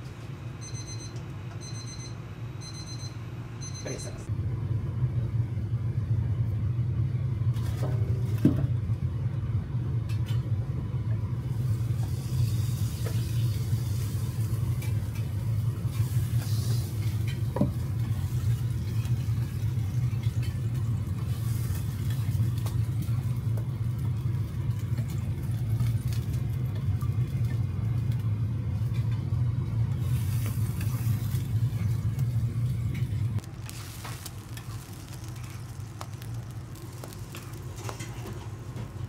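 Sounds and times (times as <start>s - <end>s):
batter sizzling on hot plate: 11.4s - 29.2s, 29.8s - 39.0s
kitchen equipment rumble: 11.6s - 39.0s.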